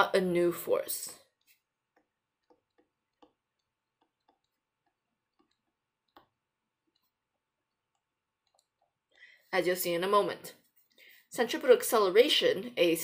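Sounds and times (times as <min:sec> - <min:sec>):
stylus tapping on tablet screen: 0:01.3 - 0:09.1.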